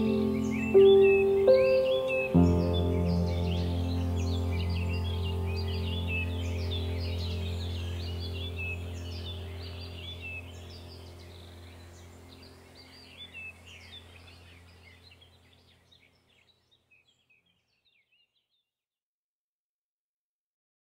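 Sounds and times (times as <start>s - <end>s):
low steady hum: 0.0s - 16.3s
birds chirping: 0.0s - 18.4s.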